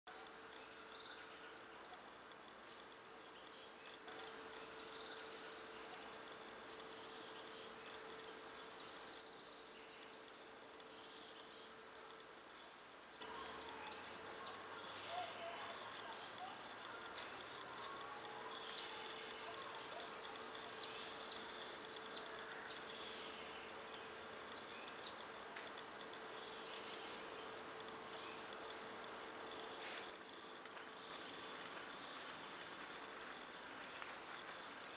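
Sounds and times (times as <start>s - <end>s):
insect hum: 0.1s - 34.9s.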